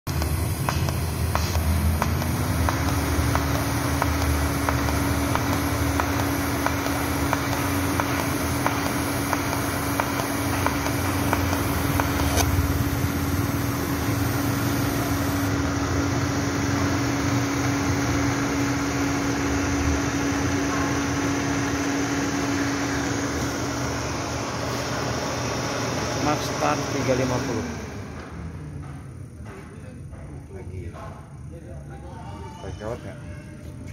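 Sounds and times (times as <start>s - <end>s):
welding arc ticking: 0.1s - 22.8s
steady hum: 0.1s - 32.0s.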